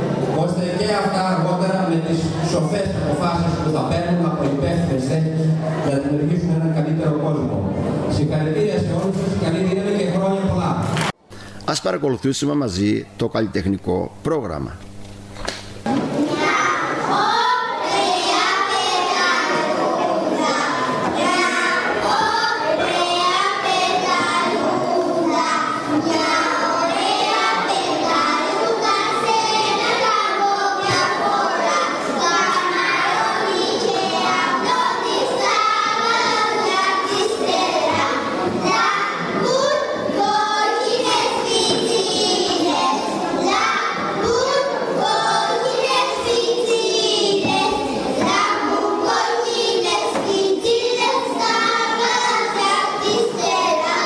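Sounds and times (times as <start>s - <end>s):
girls singing into microphones: 16.2s - 54.0s.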